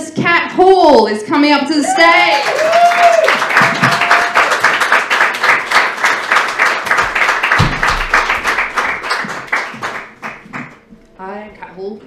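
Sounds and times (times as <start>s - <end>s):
audience applauding: 2.1s - 10.9s.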